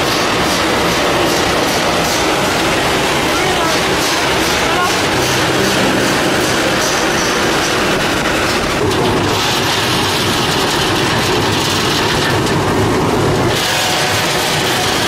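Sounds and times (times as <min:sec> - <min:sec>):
roaster machine rattle and rumble: 0:00.0 - 0:15.0.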